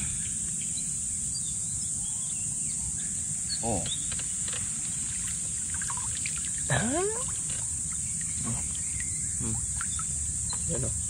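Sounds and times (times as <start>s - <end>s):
water trickling and splashing: 3.8s - 11.0s.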